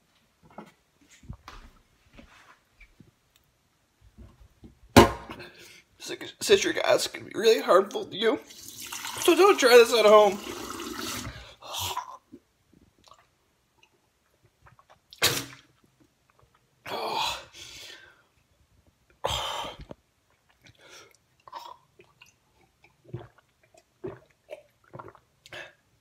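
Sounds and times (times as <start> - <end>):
mouth clicks and smacks: 13.0 - 16.6.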